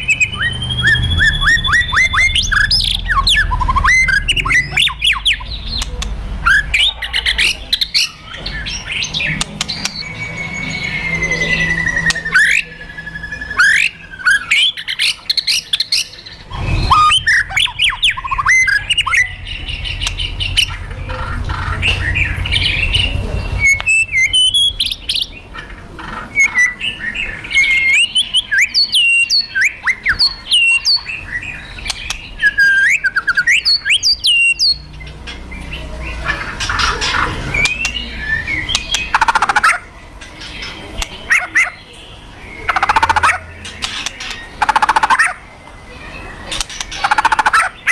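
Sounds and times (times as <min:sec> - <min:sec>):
bird whistled notes: 0:00.0 - 0:05.5, 0:09.7 - 0:15.0, 0:16.5 - 0:19.4.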